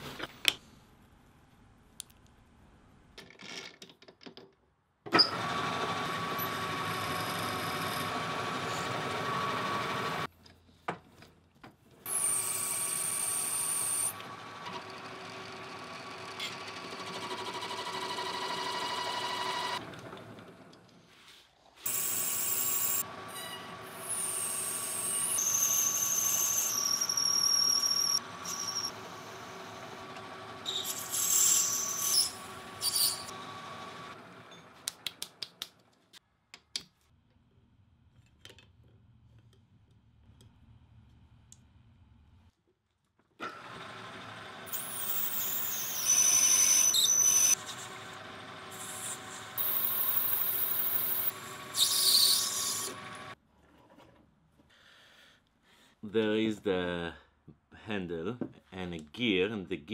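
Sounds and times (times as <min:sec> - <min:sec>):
lathe cutting metal squealing: 0:06.3 - 0:09.0, 0:21.9 - 0:34.1, 0:44.7 - 0:53.4
twist drill boring into metal: 0:24.0 - 0:29.0, 0:44.7 - 0:47.6, 0:48.7 - 0:53.0.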